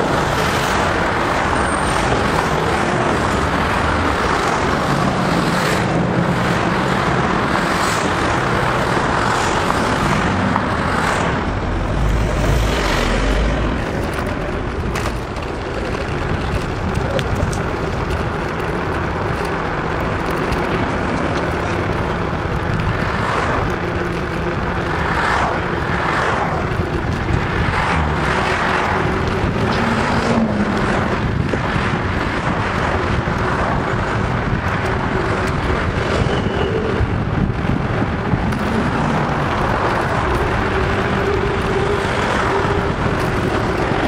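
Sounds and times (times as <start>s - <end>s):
bicycle tyres humming on pavement: 0.0s - 44.0s
passing traffic whooshes: 0.0s - 44.0s
wind rushing over microphone: 0.0s - 44.0s.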